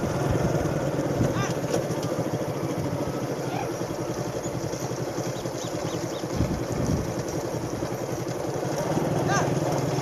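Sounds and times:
motorcycle engine running: 0.0 - 10.0
low wind buffet: 6.0 - 7.8.

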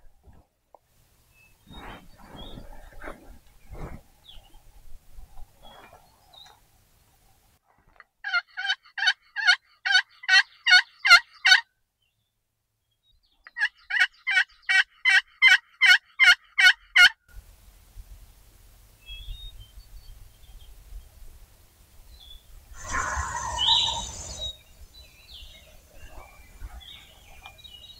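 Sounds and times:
turkey yelping: 8.2 - 11.6, 13.6 - 17.1, 22.8 - 24.5.

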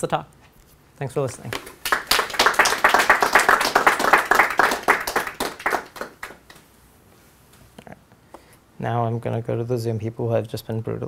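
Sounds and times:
audience applauding: 1.5 - 6.6.

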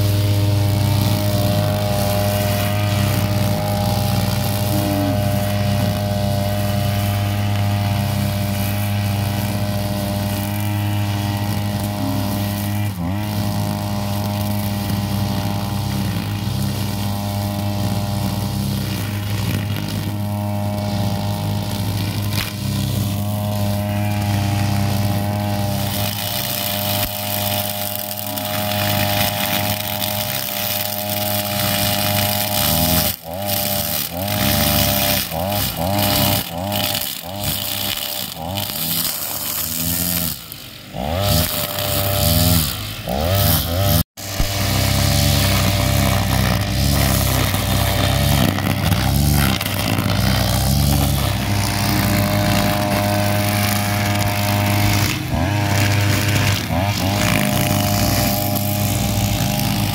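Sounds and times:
blade cutting grass: 0.0 - 59.9
brush cutter engine running: 0.0 - 59.9.

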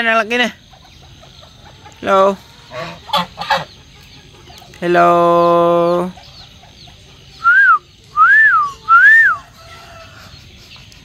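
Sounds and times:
short whistled notes: 7.4 - 9.4.

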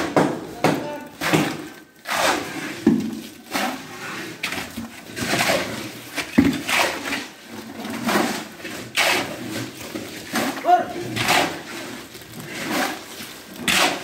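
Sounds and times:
pails knocking: 0.0 - 1.8
shovel scraping wet concrete: 0.0 - 14.0.

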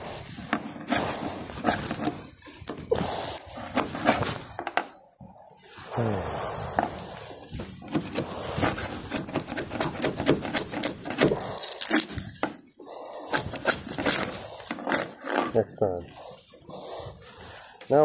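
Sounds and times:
chisel scraping fiberglass: 0.0 - 4.6, 6.8 - 12.6, 13.2 - 16.3.

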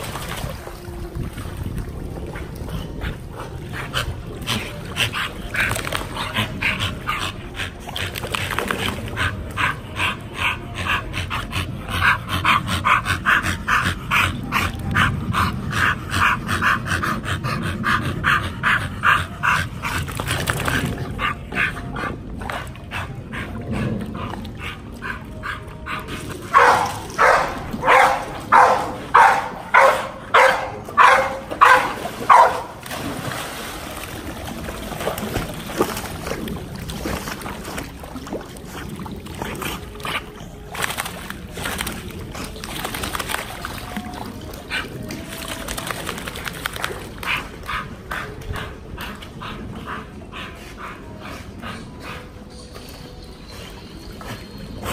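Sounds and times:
dog barking: 26.5 - 32.8.

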